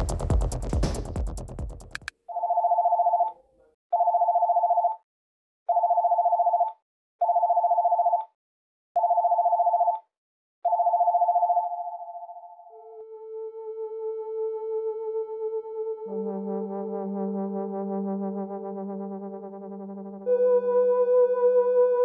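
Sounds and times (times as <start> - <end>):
electronic music: 0.0 - 2.1, 15.8 - 22.0
electronic phone ringing: 2.3 - 3.4, 4.0 - 5.0, 5.7 - 8.3, 9.0 - 10.0, 10.7 - 12.7.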